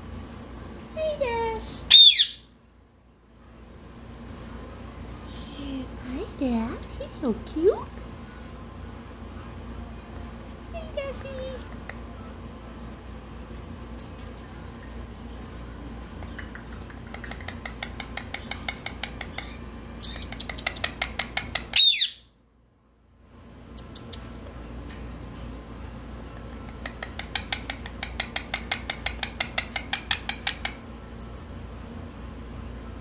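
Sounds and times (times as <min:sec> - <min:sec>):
parakeet chattering: 0:01.9 - 0:02.4, 0:16.2 - 0:22.2, 0:23.7 - 0:24.4, 0:26.6 - 0:30.8
parakeet squawk: 0:01.9 - 0:02.5, 0:18.2 - 0:22.3.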